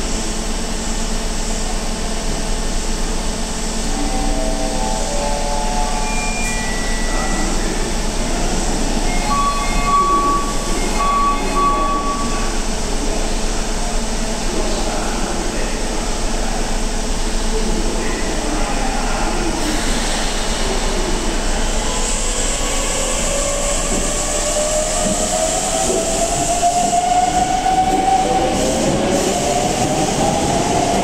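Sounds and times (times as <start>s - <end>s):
train equipment humming: 0.8s - 14.1s
train doors closing: 3.8s - 13.4s, 19.4s - 31.0s.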